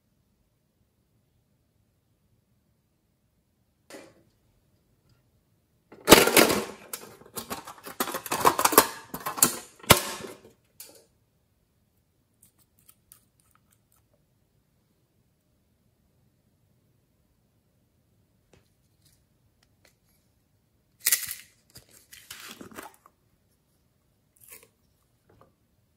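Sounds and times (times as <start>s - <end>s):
plastic lid and glass bottle clattering: 5.9s - 10.5s.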